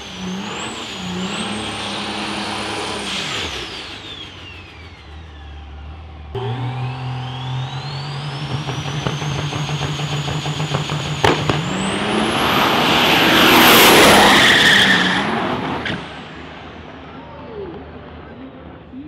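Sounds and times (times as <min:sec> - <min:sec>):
diesel truck engine accelerating: 0:00.0 - 0:19.0
high turbo whine: 0:00.0 - 0:19.0
sharp crack: 0:08.6 - 0:12.2.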